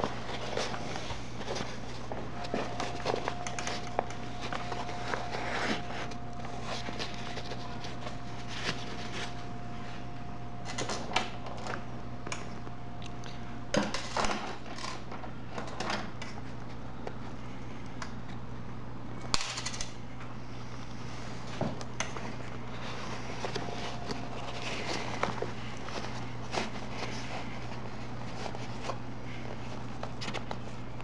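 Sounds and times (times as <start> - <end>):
fabric rustling: 0.0 - 10.1, 22.2 - 30.8
faint steady whine: 0.0 - 31.0
steady low hum: 0.0 - 31.0.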